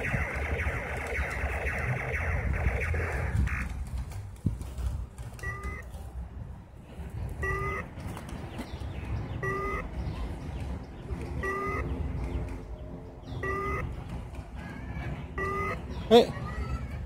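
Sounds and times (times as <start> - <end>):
low rumble: 0.0 - 4.5
short electronic beeps: 5.4 - 5.8, 7.4 - 7.8, 9.4 - 9.8, 11.4 - 11.9, 13.4 - 13.8, 15.4 - 15.8.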